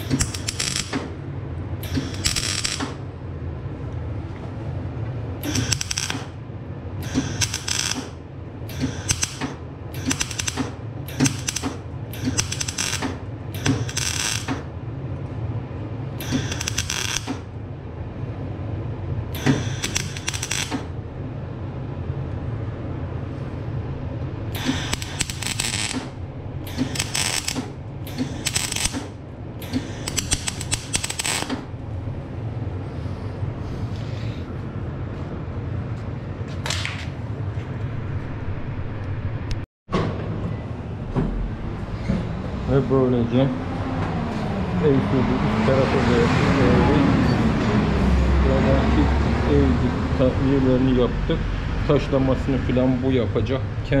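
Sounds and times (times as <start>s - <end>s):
welding arc crackling: 0.0s - 1.0s, 1.8s - 3.0s, 5.4s - 6.4s, 7.0s - 8.2s, 8.8s - 14.6s, 16.2s - 17.4s, 19.4s - 20.9s, 24.6s - 29.1s, 29.8s - 31.5s
steady low hum: 0.0s - 54.0s.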